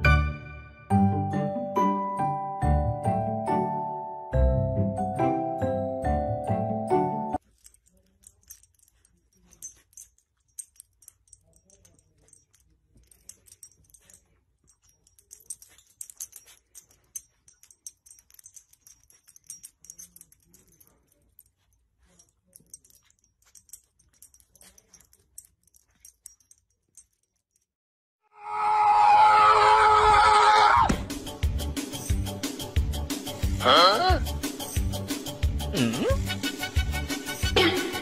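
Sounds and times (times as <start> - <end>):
puppy sniffing and licking: 7.4 - 27.1.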